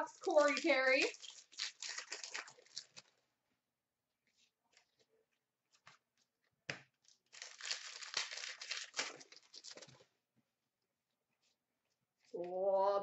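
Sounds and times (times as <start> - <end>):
foil wrapper tearing and crinkling: 0.1 - 3.2, 7.1 - 10.0.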